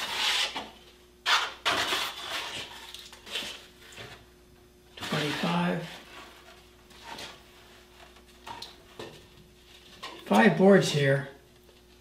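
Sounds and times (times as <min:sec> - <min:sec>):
wood slices scraping on saw table: 0:00.0 - 0:03.5, 0:05.0 - 0:07.4.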